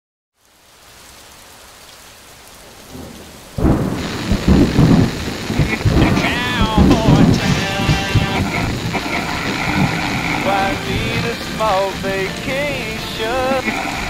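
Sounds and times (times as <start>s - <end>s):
rain hiss: 0.4s - 14.0s
thunderclap and rolling rumbles: 2.6s - 11.2s.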